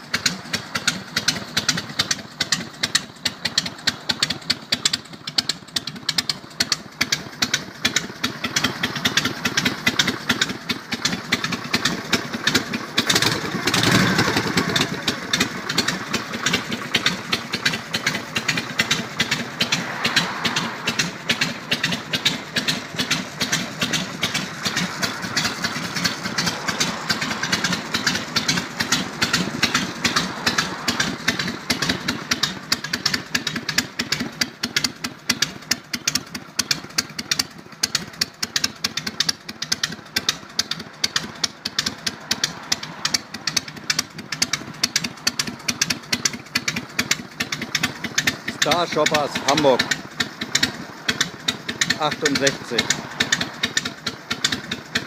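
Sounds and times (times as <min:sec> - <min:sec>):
motorcycle engine idling: 0:00.0 - 0:55.0
engine revving: 0:11.4 - 0:34.2, 0:40.2 - 0:55.0.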